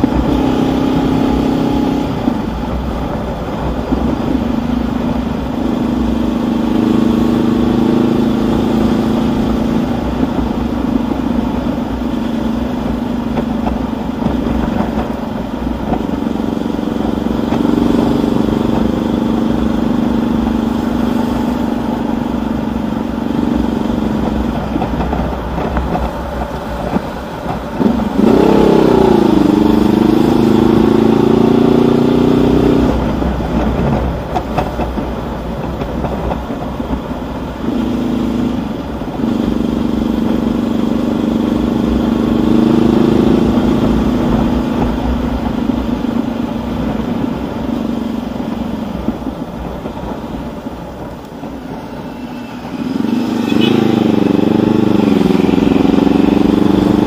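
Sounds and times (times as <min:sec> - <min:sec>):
wind rumble on microphone: 0:00.0 - 0:06.3, 0:21.4 - 0:57.0
motorcycle engine revving: 0:00.0 - 0:57.0.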